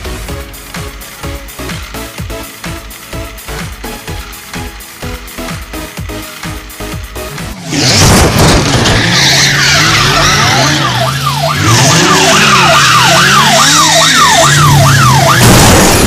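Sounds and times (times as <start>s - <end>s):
car engine running: 0.0s - 16.0s
tyres screeching: 7.5s - 14.6s
police siren: 8.7s - 16.0s.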